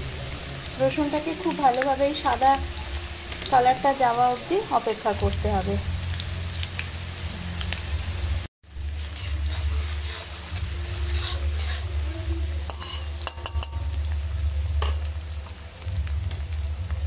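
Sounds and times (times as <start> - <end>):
garlic sizzling in hot oil: 0.0 - 17.0
metal spatula scraping pan: 9.0 - 14.0.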